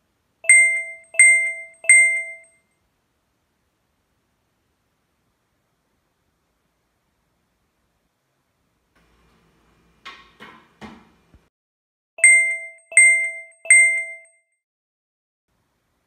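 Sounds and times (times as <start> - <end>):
bright bell-like dings: 0.4 - 2.6, 12.2 - 14.5.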